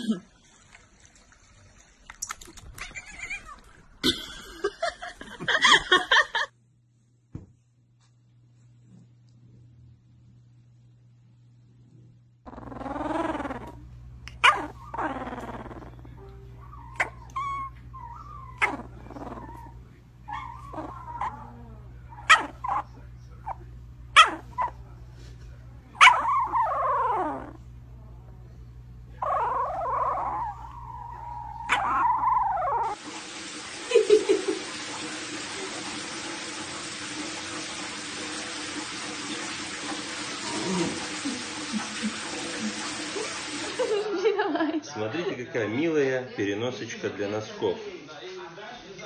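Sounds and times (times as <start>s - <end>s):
water running in a bathtub: 0.0s - 6.5s, 30.7s - 44.1s
puppy whining and yipping: 2.6s - 4.0s, 12.5s - 23.6s, 24.2s - 24.8s, 26.0s - 27.6s, 29.2s - 33.0s.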